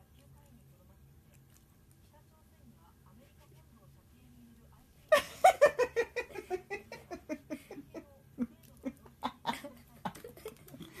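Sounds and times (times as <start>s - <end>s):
people laughing hard: 5.1s - 8.0s.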